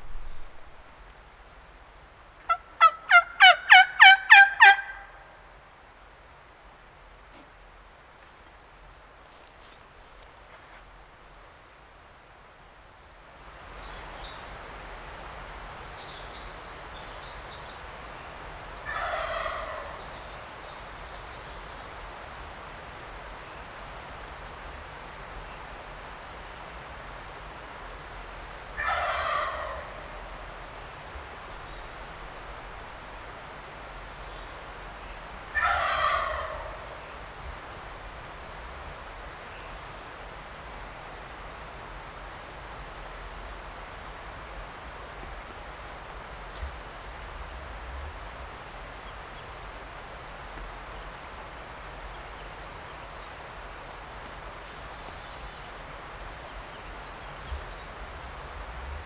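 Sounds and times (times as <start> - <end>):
turkey gobbling: 2.5 - 5.2, 18.8 - 19.9, 28.8 - 30.1, 35.6 - 36.7.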